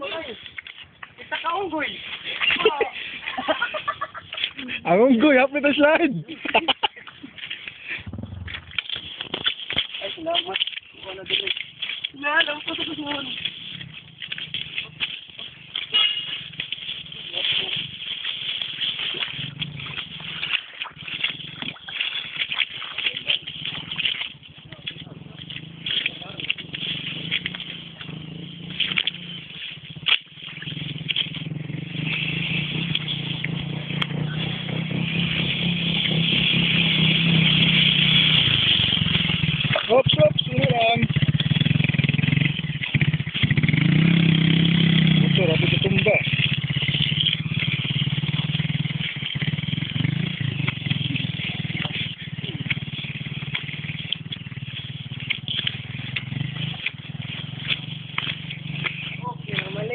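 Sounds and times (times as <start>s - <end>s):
small motorcycle engine approaching: 0.0s - 59.9s
clicks and rattles: 6.5s - 28.1s.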